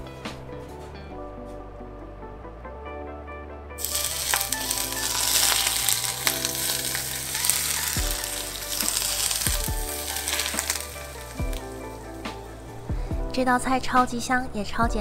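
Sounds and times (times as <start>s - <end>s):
soft background music: 0.0s - 15.0s
hot oil sizzling: 3.8s - 13.0s.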